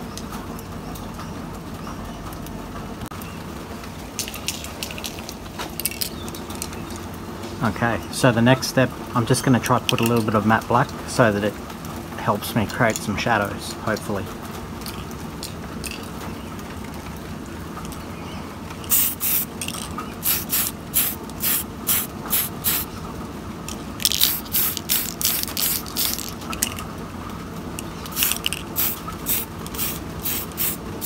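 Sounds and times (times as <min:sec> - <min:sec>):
spray paint can hissing: 0:18.8 - 0:22.9, 0:24.0 - 0:26.8, 0:28.0 - 0:31.0.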